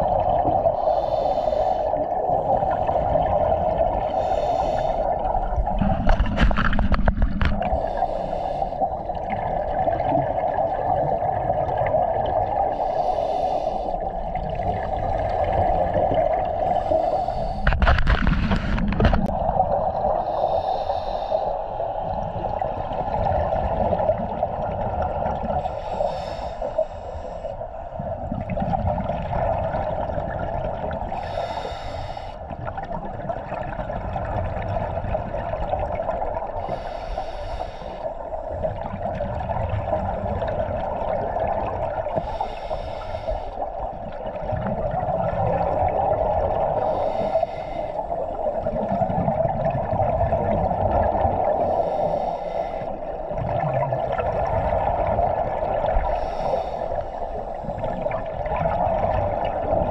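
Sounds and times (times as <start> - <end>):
steady underwater rush: 0.0 - 59.9
exhaled bubbles bursting: 44.0 - 46.8, 48.4 - 51.6, 53.2 - 56.0, 57.8 - 59.9.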